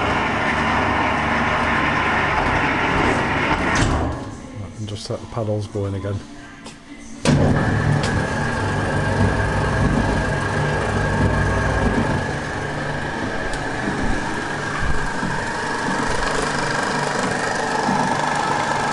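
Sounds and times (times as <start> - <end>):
mixer motor and gearbox hum: 0.0 - 5.1, 7.2 - 18.9
high whine of turning paddles: 7.4 - 18.9.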